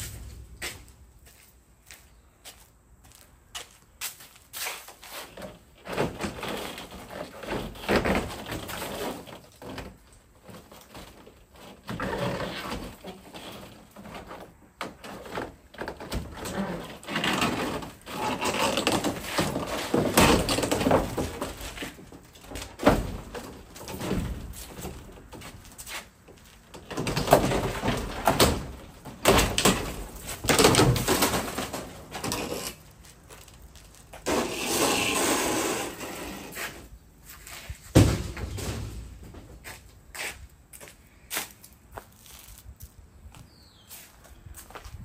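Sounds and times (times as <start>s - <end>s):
boards scraping and rasping: 10.4s - 26.1s, 26.7s - 32.8s, 34.2s - 37.8s
knocks and thuds: 37.9s - 39.5s.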